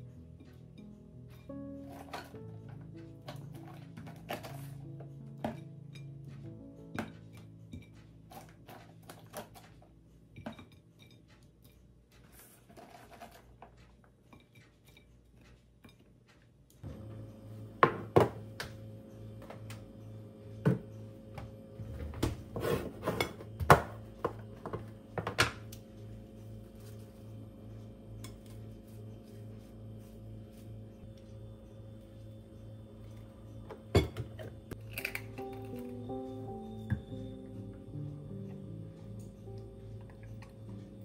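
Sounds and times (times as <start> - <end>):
dishes and utensils clinking: 0.4 - 16.1, 33.7 - 36.0.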